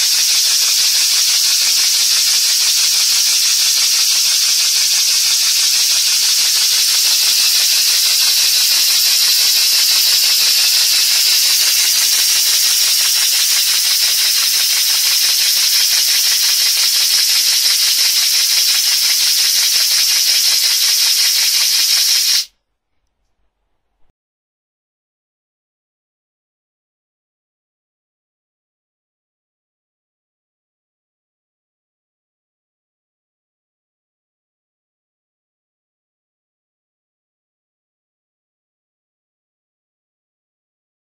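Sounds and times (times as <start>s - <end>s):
air engine exhaust puffing: 0.0s - 22.5s.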